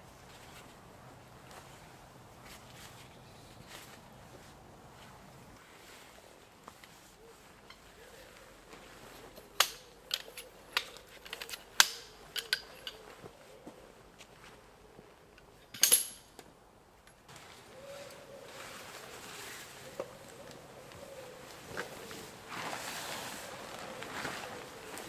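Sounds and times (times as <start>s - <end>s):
camping gear clicking and clinking: 8.6s - 13.4s, 15.3s - 17.3s
camping gear clattering: 8.7s - 13.3s
tarp rustling: 17.3s - 20.0s, 21.4s - 25.0s.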